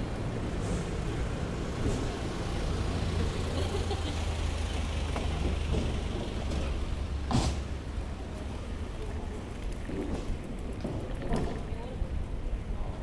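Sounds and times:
van engine passing: 0.0s - 9.8s.

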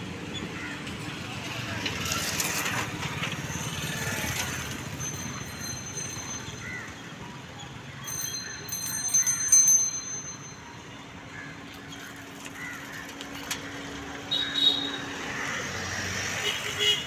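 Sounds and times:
outdoor ambience: 0.0s - 17.0s
small bell ringing rapidly: 4.9s - 6.6s, 8.1s - 10.9s.

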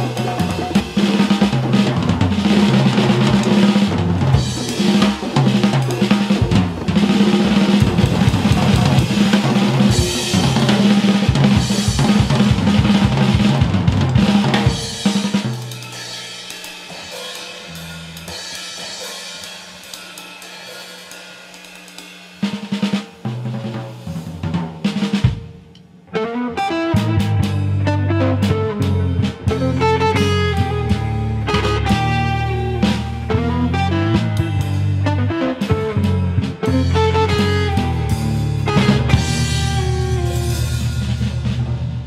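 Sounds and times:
bass notes: 0.0s - 15.4s, 26.1s - 42.0s
drum kit: 0.0s - 42.0s.

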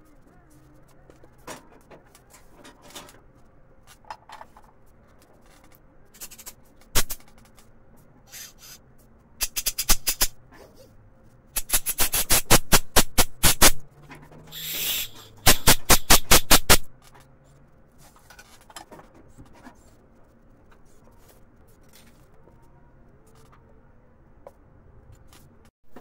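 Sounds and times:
compressed air blow gun blasts: 6.2s - 7.2s, 9.4s - 10.4s, 11.6s - 13.8s, 14.5s - 16.9s.

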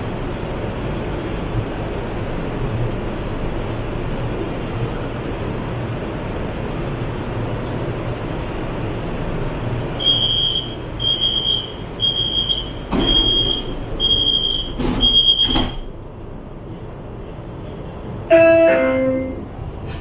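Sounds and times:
train doors knocking shut: 12.8s - 16.0s.

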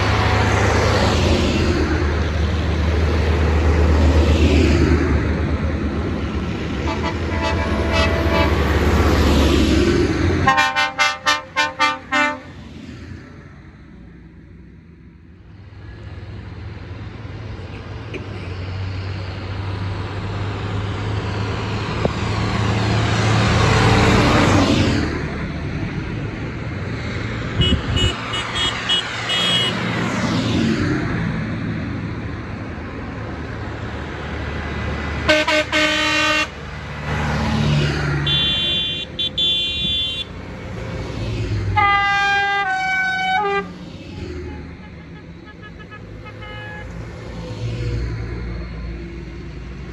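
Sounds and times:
tractor diesel engines: 0.0s - 49.9s
tractor horns tooting: 6.8s - 8.9s, 10.4s - 12.5s, 27.6s - 29.8s, 35.2s - 36.6s, 38.2s - 40.4s, 41.8s - 43.7s, 44.5s - 47.0s.

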